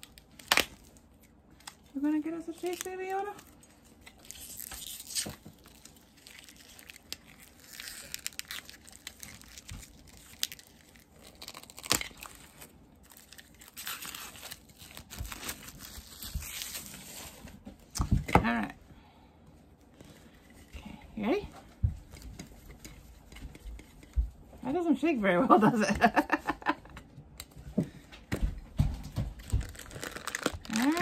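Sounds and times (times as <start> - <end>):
plastic wrapping crinkling: 0.0 - 18.0, 28.8 - 31.0.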